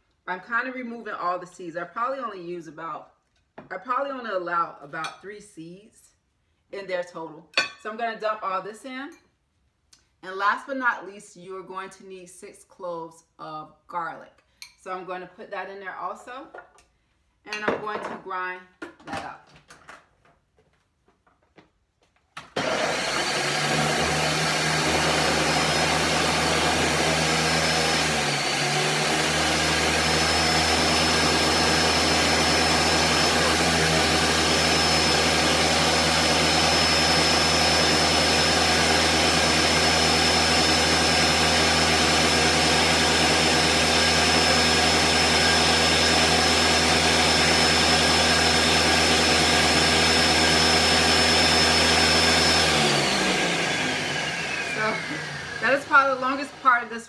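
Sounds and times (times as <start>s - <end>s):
blender whining: 22.4s - 57.0s.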